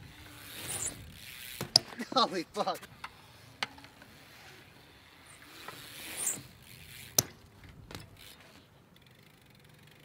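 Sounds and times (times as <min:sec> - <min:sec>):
bike rolling on concrete: 0:00.0 - 0:10.0.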